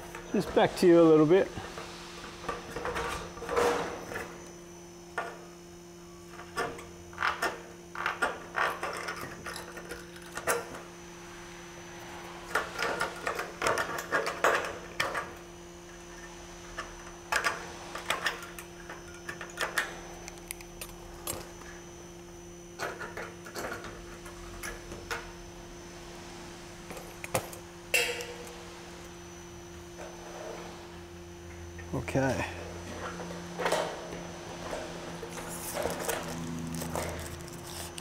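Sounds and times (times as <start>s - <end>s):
low electrical hum: 0.0s - 38.0s.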